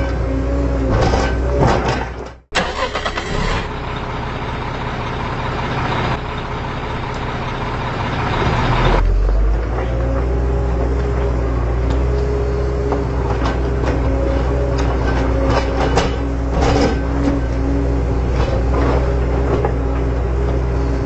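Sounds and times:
heavy machinery running: 0:00.0 - 0:21.0.

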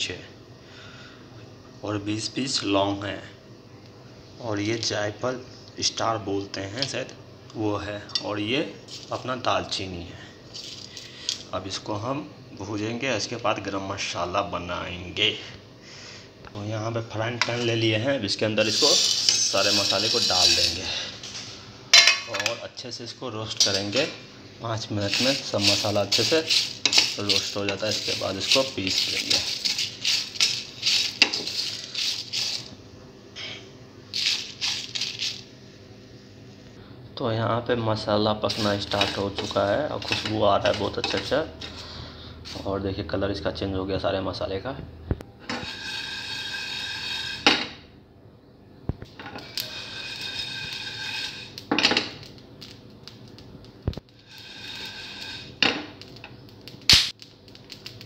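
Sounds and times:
spices rattling in a pan: 0:08.8 - 0:09.2, 0:10.4 - 0:11.5, 0:18.6 - 0:20.9, 0:23.6 - 0:24.2, 0:24.9 - 0:32.8, 0:34.1 - 0:35.6, 0:38.5 - 0:41.4, 0:49.2 - 0:58.0
frying pan clatter: 0:25.1 - 0:32.6.

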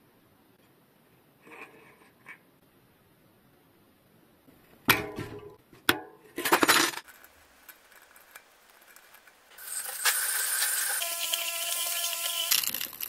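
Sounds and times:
small metal parts clinking: 0:06.5 - 0:13.0.

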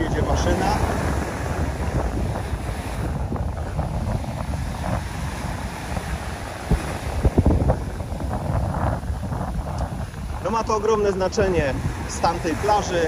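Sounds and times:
small waves washing on sand: 0:00.0 - 0:13.0
wind buffeting microphone: 0:00.0 - 0:13.0.

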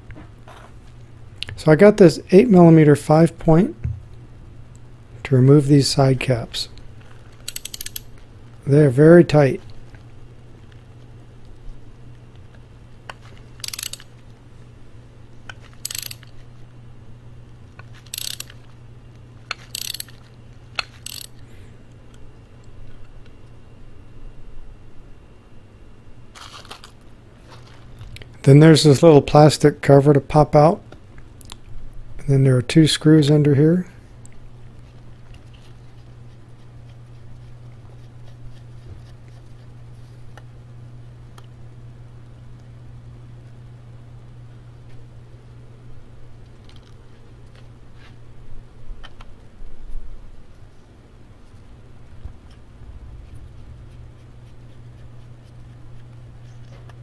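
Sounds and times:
low steady hum: 0:00.0 - 0:57.0
hand ratchet clicking: 0:07.4 - 0:08.1, 0:13.6 - 0:14.1, 0:15.8 - 0:16.3, 0:18.0 - 0:18.6, 0:19.5 - 0:20.2, 0:20.8 - 0:21.3.

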